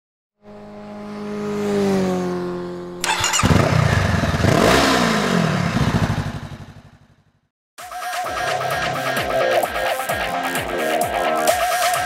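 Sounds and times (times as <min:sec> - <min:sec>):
motorcycle engine droning and revving: 0:00.4 - 0:07.5.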